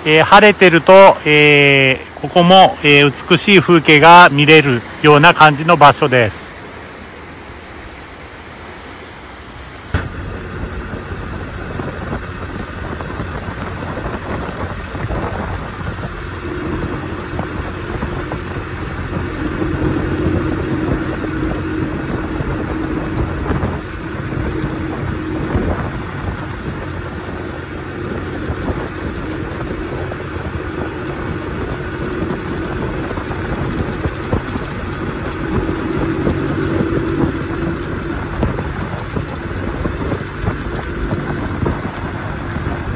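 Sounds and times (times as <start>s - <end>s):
wind and road noise: 0.0s - 42.9s
moped engine running: 10.0s - 42.9s.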